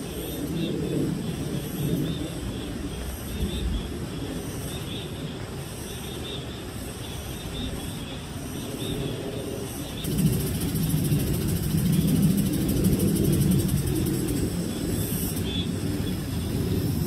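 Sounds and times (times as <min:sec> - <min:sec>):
fast-pulsing high buzz: 0:10.0 - 0:17.0
low rumble: 0:10.0 - 0:17.0.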